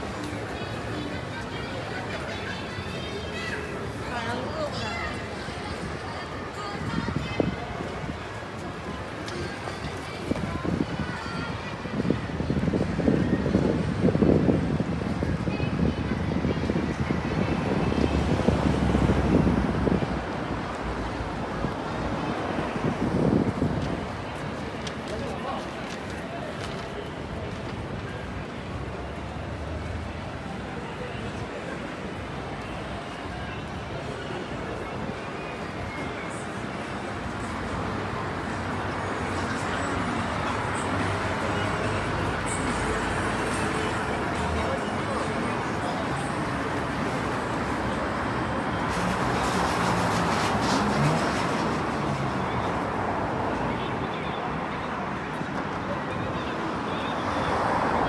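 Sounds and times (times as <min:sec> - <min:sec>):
traffic rumble: 0:00.0 - 0:58.0
wind buffeting microphone: 0:09.8 - 0:20.5, 0:22.4 - 0:24.8.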